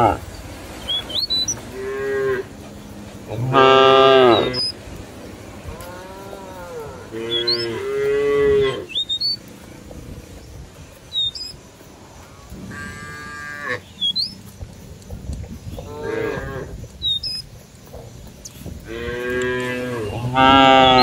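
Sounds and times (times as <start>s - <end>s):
cattle mooing: 0.0s - 0.2s, 0.9s - 4.8s, 5.6s - 9.3s, 12.6s - 14.3s, 15.8s - 16.8s, 18.8s - 21.0s.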